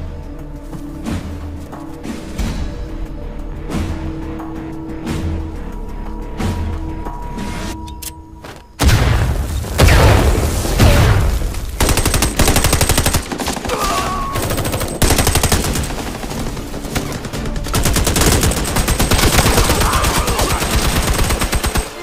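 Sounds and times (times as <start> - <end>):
heavy gunshots: 8.8 - 22.0.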